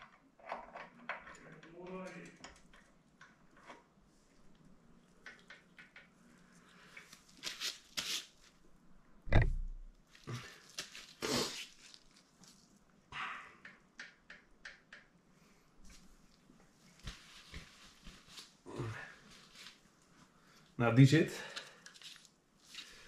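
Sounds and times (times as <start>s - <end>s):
small metal clicks and knocks: 0.0s - 3.9s, 5.1s - 6.2s, 13.6s - 15.2s
gloved hands rustling: 6.6s - 8.6s, 9.7s - 12.9s, 15.9s - 18.6s, 19.2s - 20.2s, 21.6s - 23.0s
loud deep thump: 9.3s - 9.9s.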